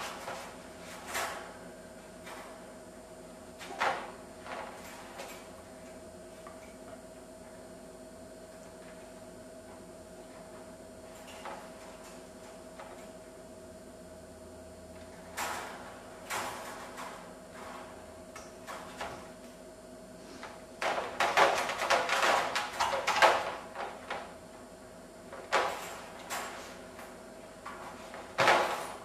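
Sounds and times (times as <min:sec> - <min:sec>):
wire dog crate rattling: 0:20.8 - 0:24.2.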